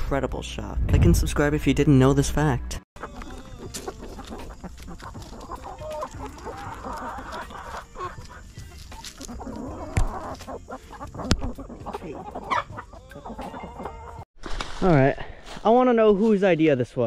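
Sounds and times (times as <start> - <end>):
hens clucking and squawking: 3.0 - 14.3.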